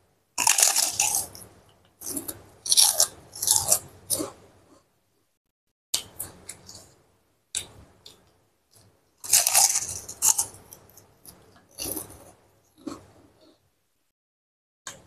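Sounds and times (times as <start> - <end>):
person crunching crisp crackers: 0.4 - 4.4, 8.8 - 13.1.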